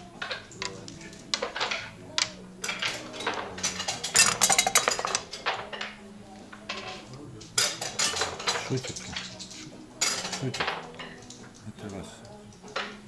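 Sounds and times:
game checkers clicking on board: 0:00.2 - 0:05.5.

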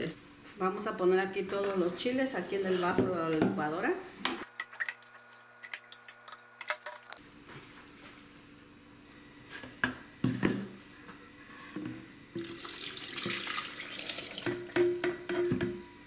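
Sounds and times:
liquid pouring into blender jar: 0:12.4 - 0:14.7.

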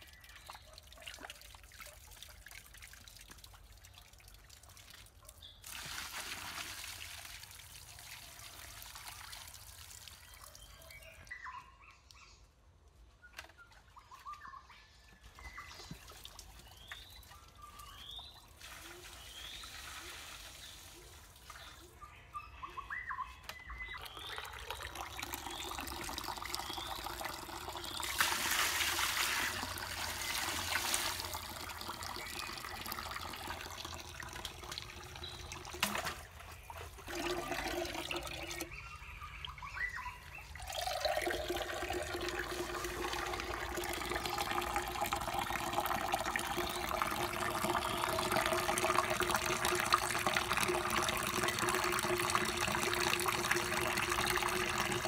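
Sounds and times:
water pouring and trickling: 0:00.0 - 0:11.4, 0:15.2 - 0:22.0, 0:23.6 - 0:55.0
small birds chirping: 0:10.1 - 0:28.2, 0:38.1 - 0:40.7.

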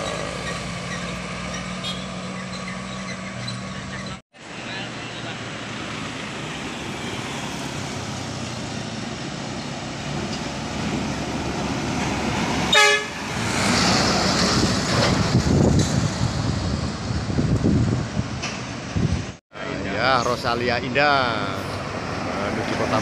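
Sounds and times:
bus engine and tyre noise: 0:00.0 - 0:23.0
bus horn toot: 0:01.7 - 0:02.2, 0:12.7 - 0:13.3.

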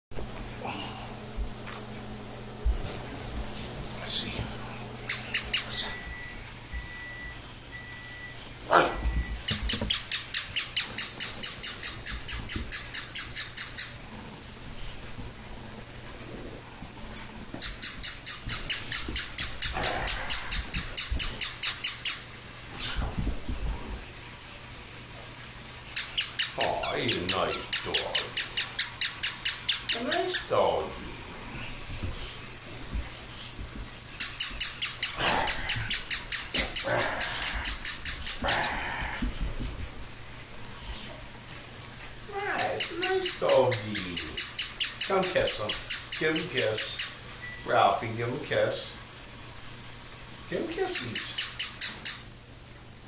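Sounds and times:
toy puppy yapping: 0:26.0 - 0:30.5, 0:34.2 - 0:38.8, 0:42.4 - 0:47.2.

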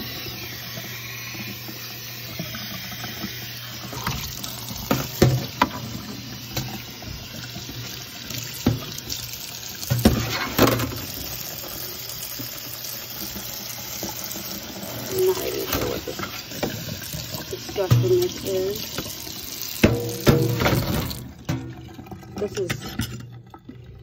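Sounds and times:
tap running water: 0:00.0 - 0:24.0
filter knocking and clattering in sink: 0:04.8 - 0:06.8, 0:07.6 - 0:09.1, 0:09.8 - 0:11.2, 0:15.4 - 0:23.4.

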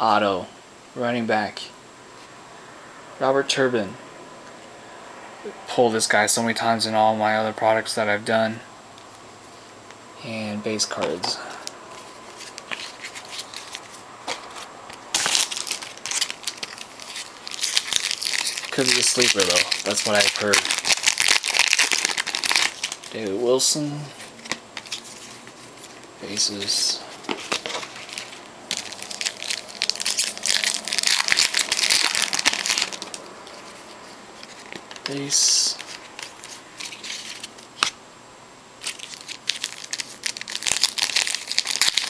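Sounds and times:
cards rustling: 0:10.8 - 0:38.0, 0:38.8 - 0:42.0
foil wrapper crinkling: 0:11.1 - 0:23.5, 0:24.1 - 0:37.9, 0:38.8 - 0:42.0.

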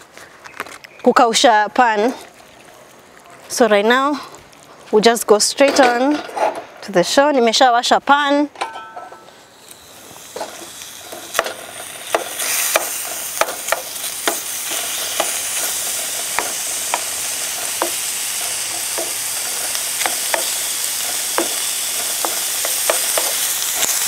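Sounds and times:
hot pan sizzling: 0:08.6 - 0:24.0
sharp clicks and pops: 0:09.6 - 0:24.0.

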